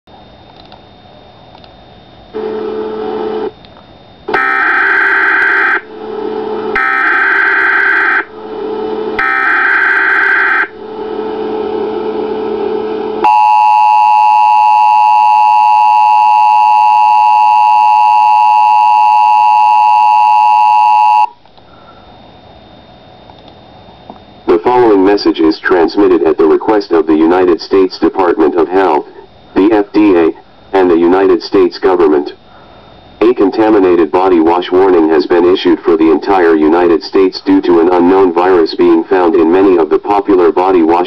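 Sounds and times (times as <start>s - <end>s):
two-tone attention signal: 13.2s - 21.4s.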